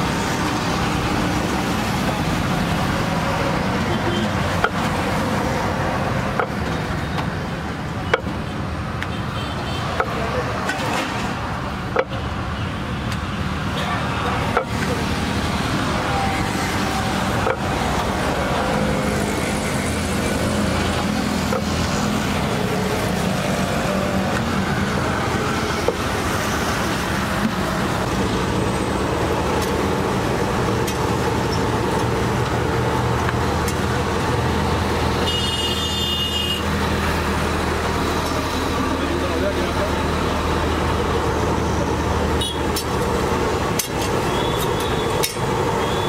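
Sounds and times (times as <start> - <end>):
passing traffic rumble: 0.0 - 46.0.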